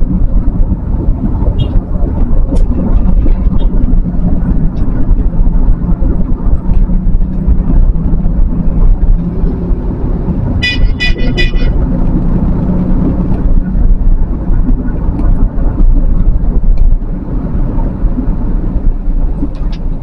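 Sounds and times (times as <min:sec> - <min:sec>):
truck engine rumble: 0:00.0 - 0:20.0
vehicle horn short toots: 0:10.6 - 0:11.8.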